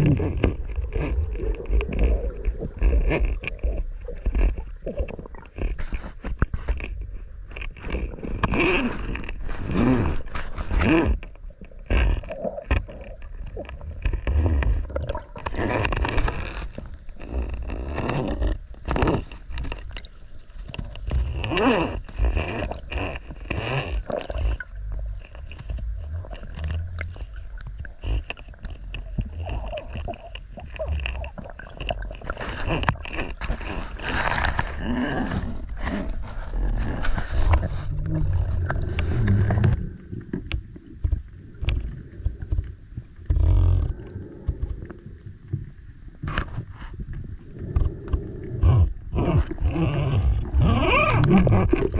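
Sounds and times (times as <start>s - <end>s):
underwater rumble: 0.0s - 51.9s
underwater scrapes and gurgles: 0.0s - 51.9s.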